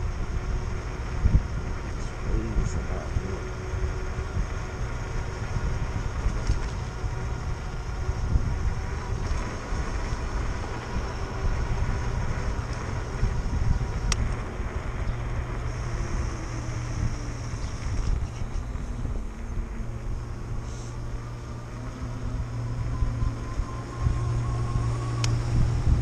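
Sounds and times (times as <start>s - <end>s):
bike tyre noise on asphalt: 0.0s - 26.0s
faint steady whine: 0.0s - 26.0s
wind rushing over microphone: 0.0s - 26.0s.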